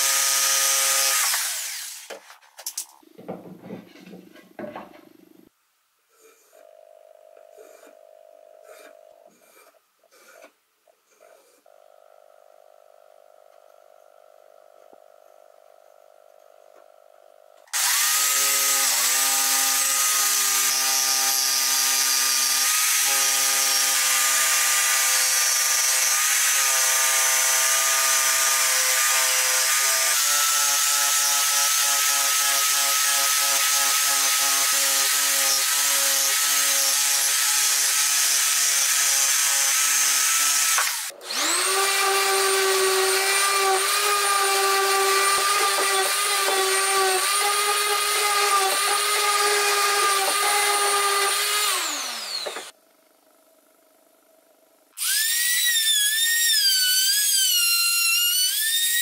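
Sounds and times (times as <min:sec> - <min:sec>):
jigsaw cutting wood: 0:00.0 - 0:02.2, 0:17.7 - 0:52.8, 0:55.0 - 0:59.0
orbital sander running: 0:37.5 - 0:52.8.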